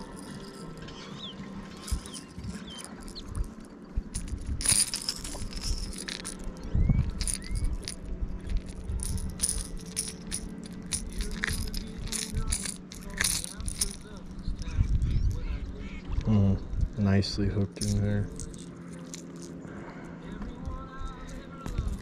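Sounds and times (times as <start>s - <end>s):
metallic rattling and clicking: 0.0s - 15.2s, 21.1s - 22.0s.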